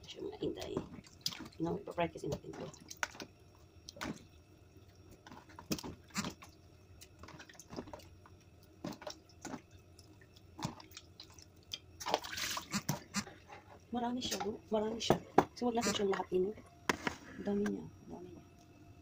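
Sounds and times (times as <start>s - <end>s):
water dripping: 0.4s - 13.2s
wet rustle: 0.5s - 14.4s
wet chicken squishing: 0.6s - 1.6s, 5.3s - 8.1s, 8.8s - 13.3s
small splashes: 0.6s - 4.4s, 5.2s - 13.3s.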